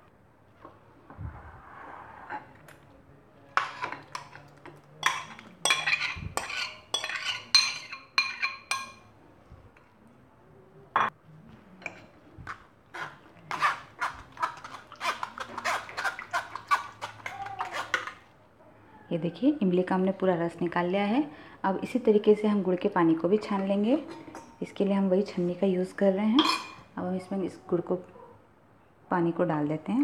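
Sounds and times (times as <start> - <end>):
spoon clinking on metal strainer: 5.0 - 9.0.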